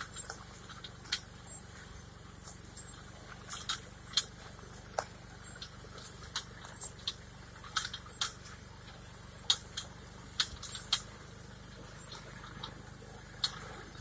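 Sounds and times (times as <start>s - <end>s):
distant tractor engine hum: 0.0s - 14.0s
sharp ticks and taps: 2.4s - 8.5s, 9.4s - 11.1s.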